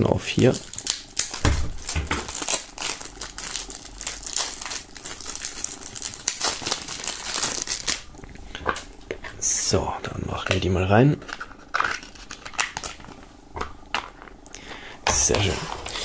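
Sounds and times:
plastic film tearing and crinkling: 0.3s - 8.2s, 11.2s - 13.2s.

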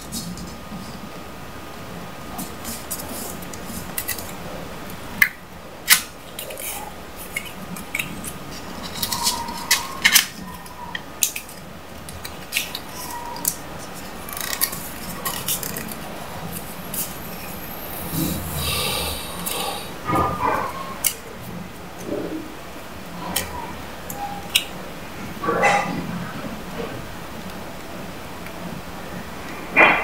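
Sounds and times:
paper money crinkling: 11.2s - 17.6s.

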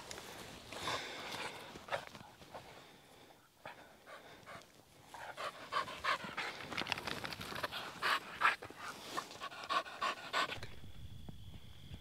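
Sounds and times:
dog panting: 3.6s - 10.7s.

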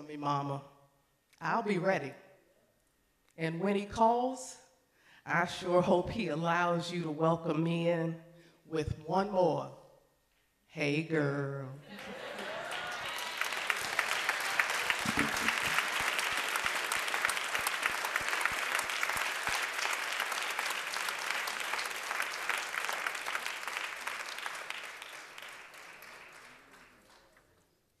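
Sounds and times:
congregation applauding: 11.9s - 27.7s.

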